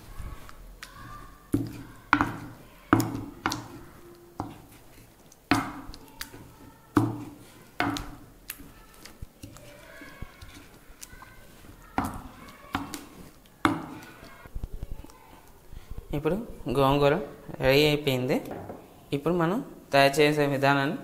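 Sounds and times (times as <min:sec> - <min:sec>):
wooden masher pounding leaves: 0:00.0 - 0:14.4.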